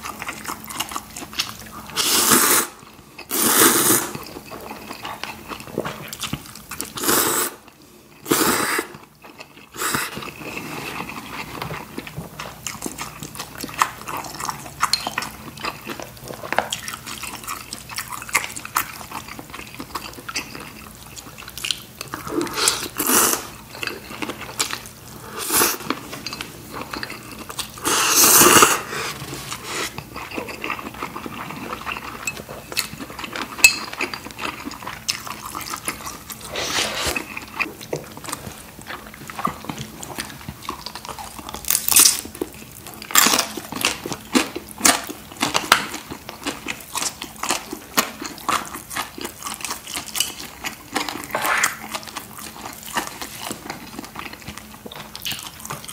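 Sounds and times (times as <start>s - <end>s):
person chewing noodles: 0.0s - 55.9s.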